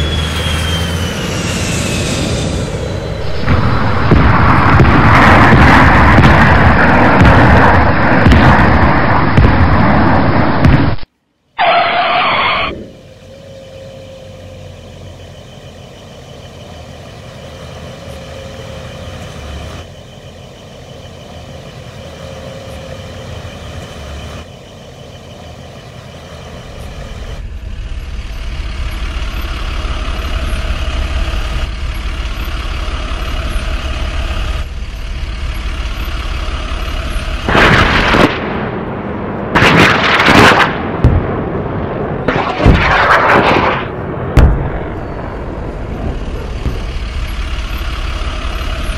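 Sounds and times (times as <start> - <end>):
truck engine running: 0.0 - 48.9
loud blasts: 1.1 - 12.9, 36.0 - 47.3.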